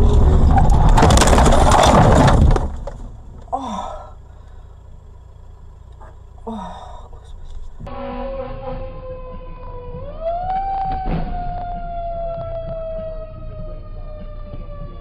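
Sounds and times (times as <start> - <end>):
car crash crunching and scraping: 0.0 - 6.4, 10.5 - 12.4.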